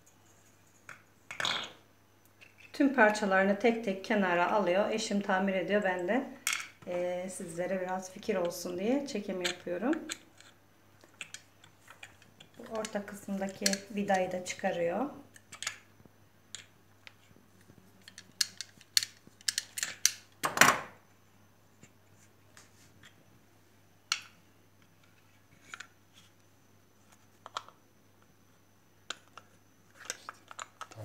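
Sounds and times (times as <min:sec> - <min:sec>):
plastic parts clicking: 0:18.0 - 0:20.3, 0:30.0 - 0:31.0.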